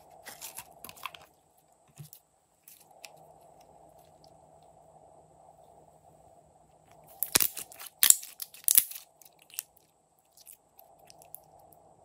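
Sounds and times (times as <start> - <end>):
slime crackling and popping: 7.2 - 9.8.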